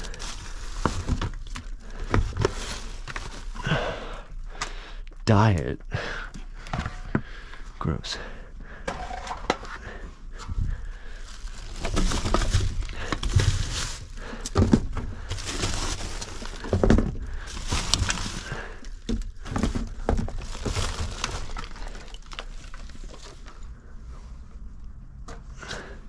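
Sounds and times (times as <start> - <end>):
knocks and thuds of items: 0.0 - 3.3, 11.7 - 21.7
packaging rustling and crinkling: 0.0 - 3.8, 10.4 - 23.7.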